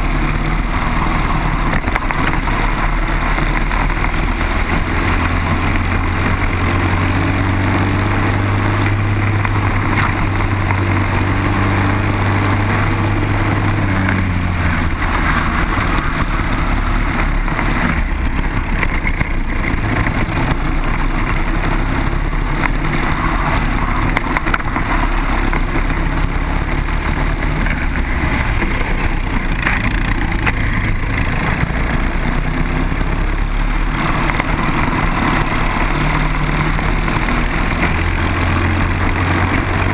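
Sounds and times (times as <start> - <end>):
kart engine running at speed: 0.0 - 39.9.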